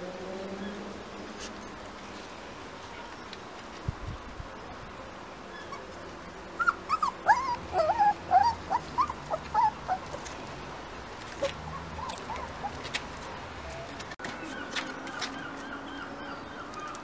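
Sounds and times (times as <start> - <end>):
puppy whimpering: 5.5 - 10.2, 11.4 - 12.9.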